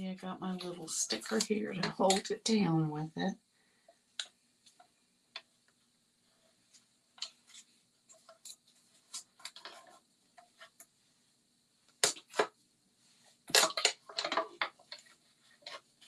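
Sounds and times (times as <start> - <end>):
plastic clattering: 13.4 - 15.8.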